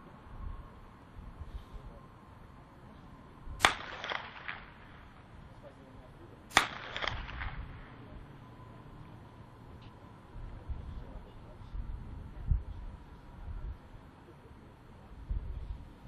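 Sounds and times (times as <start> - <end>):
gunshot echoes: 3.6 - 5.1, 6.5 - 8.0
blank pistol shots: 3.6 - 5.2, 6.5 - 8.0.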